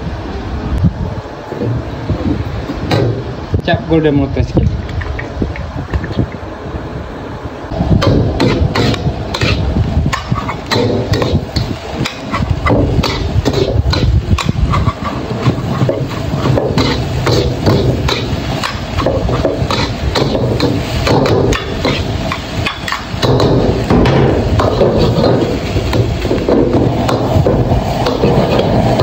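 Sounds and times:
metal utensils scraping a wok: 0:08.0 - 0:29.0.

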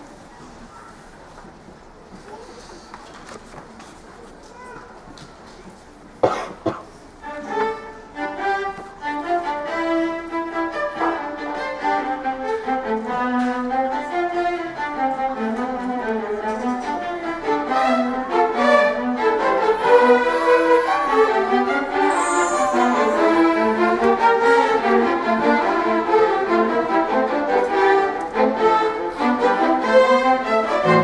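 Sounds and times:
string orchestra playing: 0:07.2 - 0:31.0.

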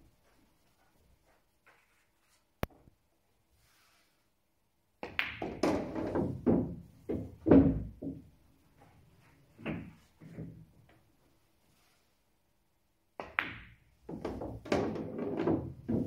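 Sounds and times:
pool balls clicking: 0:05.0 - 0:08.3, 0:13.2 - 0:16.0
ball rolling in pocket: 0:14.0 - 0:16.0.

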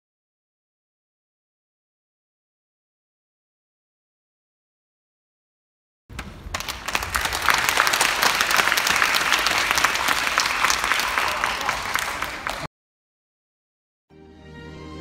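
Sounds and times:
audience applauding: 0:06.1 - 0:12.7.

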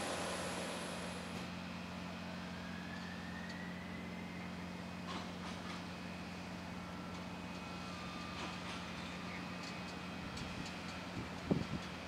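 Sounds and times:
high jet whine: 0:00.0 - 0:01.6
low engine hum: 0:00.0 - 0:12.0.

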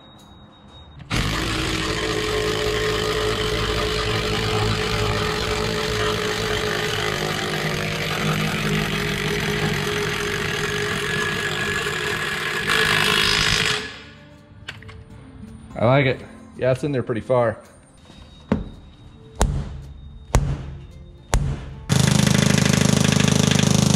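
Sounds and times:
impact wrench running: 0:01.1 - 0:14.1, 0:21.4 - 0:23.9.

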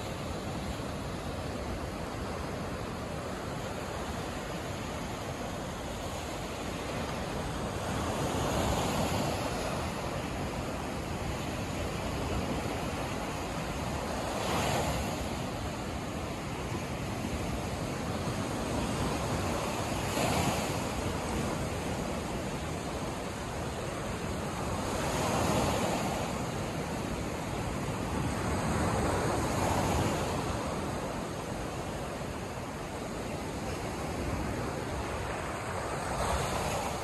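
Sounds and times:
waves breaking on sandy shore: 0:00.0 - 0:37.0.

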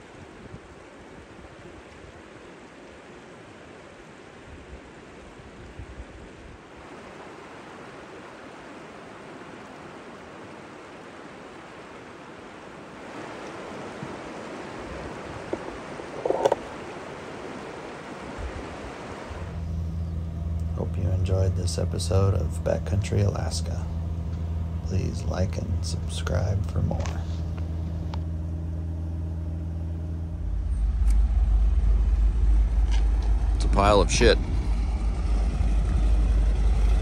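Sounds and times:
river water rushing over rocks: 0:06.4 - 0:19.6.

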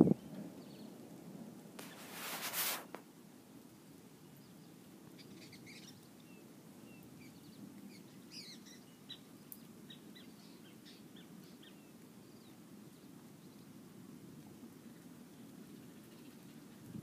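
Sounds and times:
faint bird chirps: 0:04.3 - 0:13.8.

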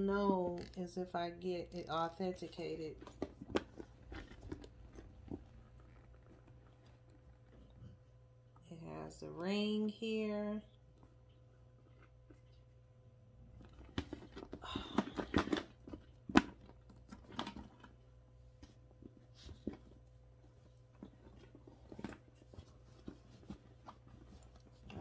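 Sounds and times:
handbag rustling and scraping: 0:02.6 - 0:07.9.

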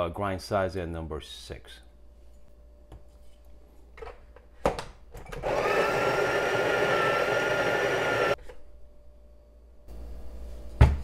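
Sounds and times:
coffee grinder grinding beans: 0:05.4 - 0:08.4.

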